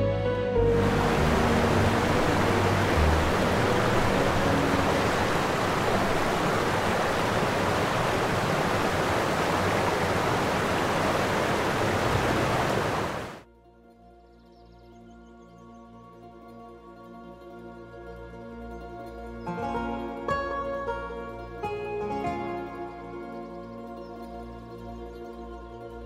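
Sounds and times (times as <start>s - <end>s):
steady rushing noise: 0.7s - 13.4s.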